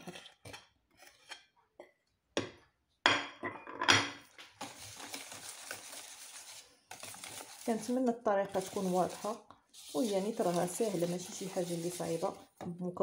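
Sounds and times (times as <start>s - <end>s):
metal spoon scraping a bowl: 0.0s - 1.5s
wire whisk swishing: 8.6s - 12.4s.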